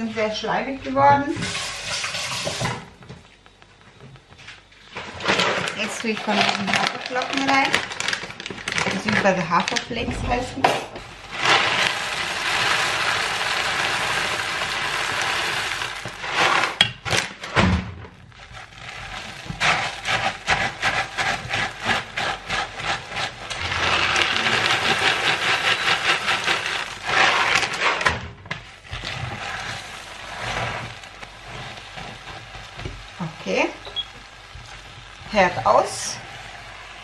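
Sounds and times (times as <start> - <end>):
spatula scraping pot: 1.1 - 2.8, 18.4 - 37.0
oat flakes poured into pot: 1.4 - 2.6, 5.2 - 9.8, 11.0 - 17.5, 18.1 - 37.0.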